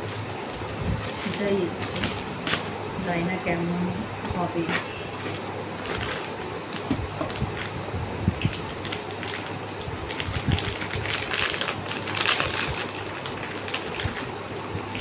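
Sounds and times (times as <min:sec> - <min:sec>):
packaging crinkling: 0:00.0 - 0:02.8, 0:04.7 - 0:07.8, 0:08.4 - 0:15.0.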